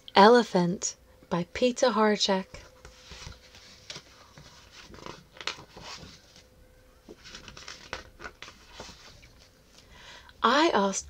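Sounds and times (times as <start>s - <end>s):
book pages turning: 2.5s - 9.8s.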